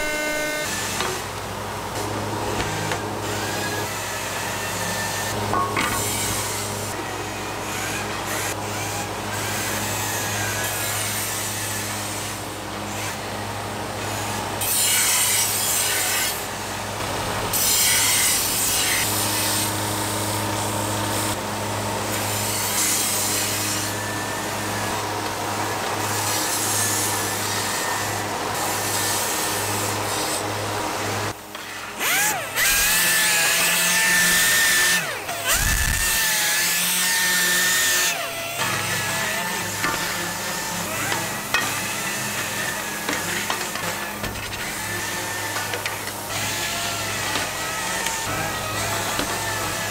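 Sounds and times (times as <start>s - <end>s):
metal grinding on abrasive: 0.0s - 1.0s, 37.2s - 49.9s.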